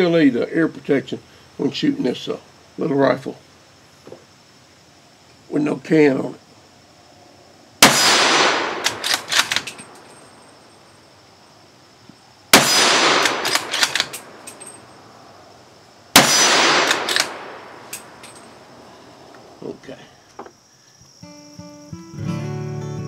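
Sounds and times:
rifle shots: 0:07.8 - 0:10.0, 0:12.5 - 0:14.8, 0:16.1 - 0:18.3
rifle bolt clicking: 0:08.8 - 0:10.0, 0:13.1 - 0:14.7, 0:16.8 - 0:18.4.

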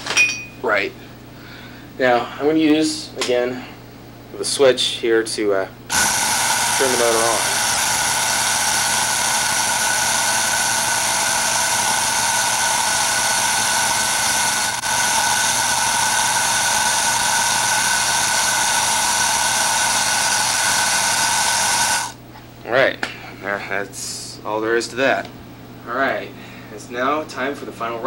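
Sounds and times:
small electric motor whining: 0:05.9 - 0:22.2.

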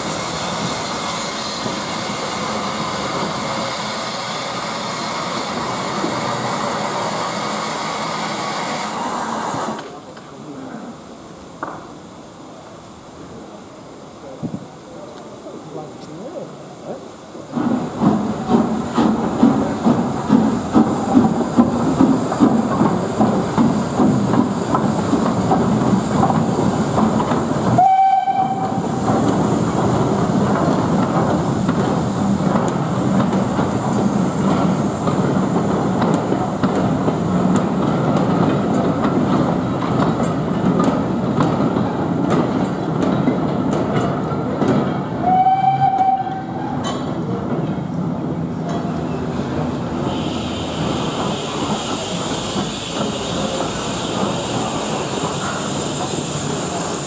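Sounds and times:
steam train rumbling: 0:00.0 - 0:57.0
train whistle: 0:27.8 - 0:28.8, 0:45.2 - 0:46.7.

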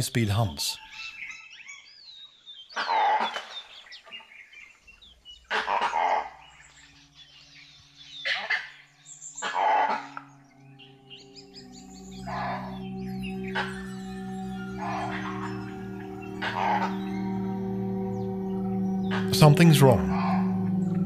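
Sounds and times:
birds chirping faintly: 0:00.0 - 0:21.0
loud animal calls: 0:02.7 - 0:04.3, 0:05.4 - 0:07.1, 0:08.2 - 0:21.0
low music drone: 0:05.2 - 0:21.0.

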